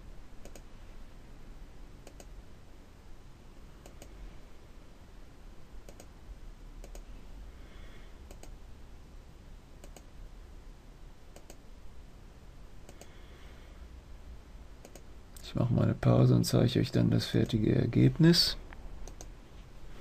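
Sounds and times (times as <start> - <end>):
faint steady low hum: 0.0 - 20.0
computer mouse clicking: 0.4 - 0.7, 2.0 - 2.3, 3.8 - 4.2, 5.8 - 6.1, 6.8 - 7.1, 8.3 - 8.6, 9.8 - 10.1, 11.3 - 11.6, 12.8 - 13.1, 14.8 - 15.1, 19.0 - 19.3.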